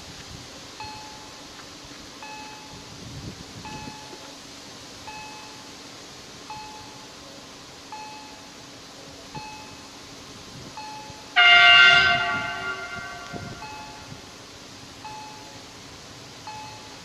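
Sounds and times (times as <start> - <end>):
loud tone with overtones: 11.4 - 14.1.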